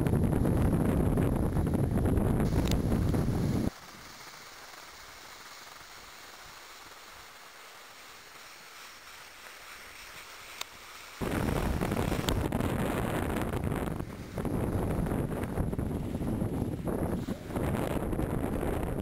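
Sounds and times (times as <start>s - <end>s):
wind buffeting microphone: 0.0s - 3.8s, 11.2s - 19.0s
faint steady hiss: 0.0s - 19.0s.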